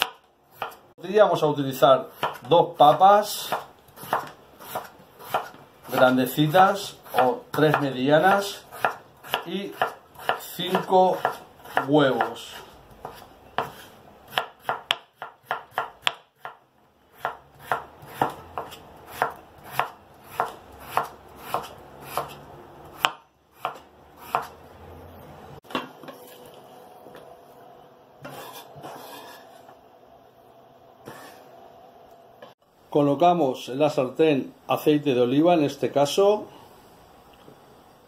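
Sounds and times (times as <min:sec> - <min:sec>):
knife slicing potato on board: 0:00.0 - 0:00.8, 0:02.0 - 0:24.6, 0:28.2 - 0:29.7.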